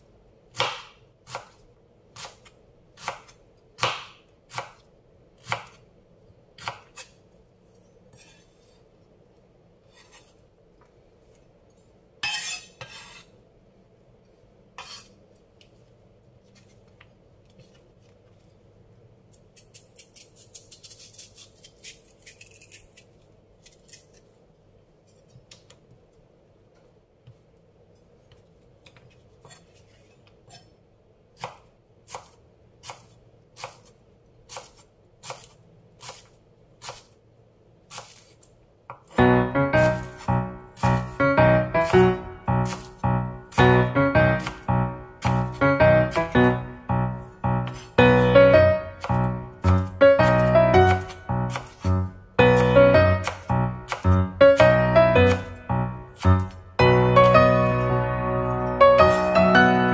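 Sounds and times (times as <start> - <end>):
knife chopping: 0.5 - 1.6, 2.2 - 5.8, 6.6 - 7.2, 31.4 - 37.1, 37.9 - 58.0, 58.9 - 59.6.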